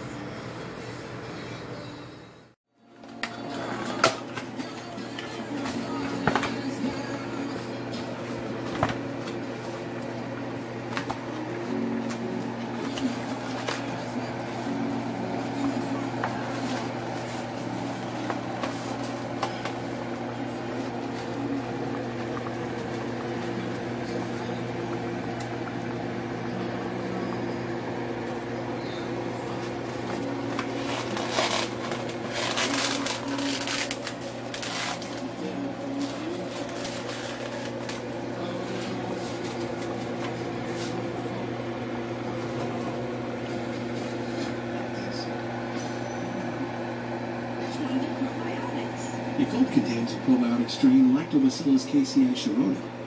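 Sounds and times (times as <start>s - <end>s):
mechanical hum: 0.0s - 53.0s.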